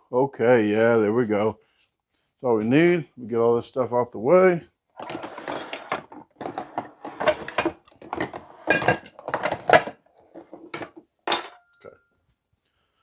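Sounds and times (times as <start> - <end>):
cookware clattering and clinking: 5.0 - 12.0.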